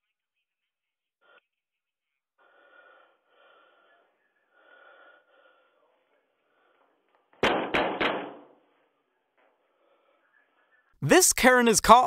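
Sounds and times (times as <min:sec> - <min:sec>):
heavy bangs on a door: 0:07.4 - 0:08.6.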